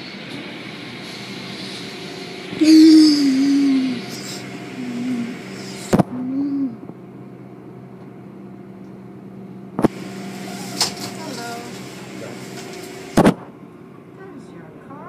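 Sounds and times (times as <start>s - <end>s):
car wash machinery hum: 0.0s - 15.0s
person making gliding vocal sounds: 2.6s - 5.4s.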